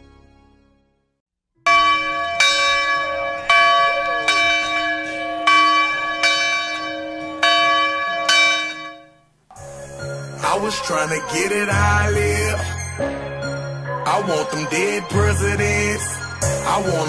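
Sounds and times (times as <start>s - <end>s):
bell strokes ringing: 1.7s - 15.2s.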